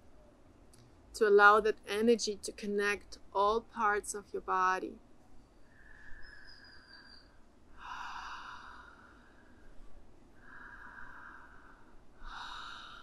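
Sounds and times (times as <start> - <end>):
woman breathing deeply: 5.6 - 13.0.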